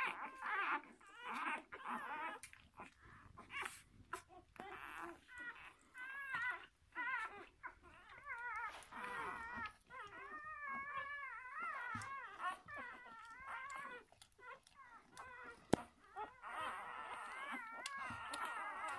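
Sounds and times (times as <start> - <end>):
puppies whining and squeaking: 0.0 - 18.9.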